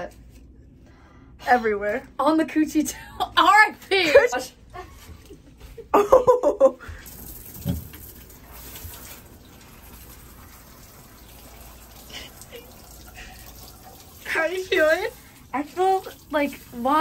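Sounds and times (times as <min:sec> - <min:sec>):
water running and splashing: 0:07.0 - 0:17.0.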